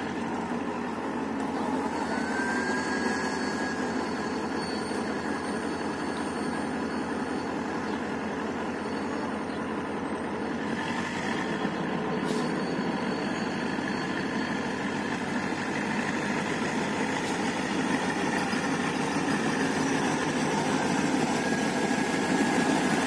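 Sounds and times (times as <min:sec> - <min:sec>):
diesel locomotive idling: 0:00.0 - 0:23.0
faint rising whine: 0:00.8 - 0:07.0.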